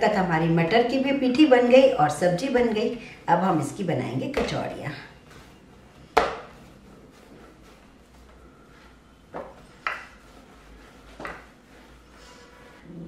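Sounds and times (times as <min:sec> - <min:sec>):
dough knocking on wooden board: 0:06.2 - 0:06.5, 0:09.3 - 0:10.2, 0:11.2 - 0:11.5.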